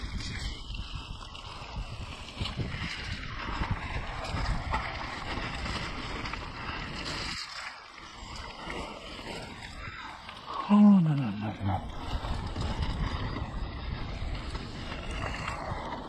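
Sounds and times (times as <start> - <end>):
wind buffeting microphone: 0.0 - 7.4, 11.4 - 16.0
mountain bike rolling on dirt: 0.0 - 16.0.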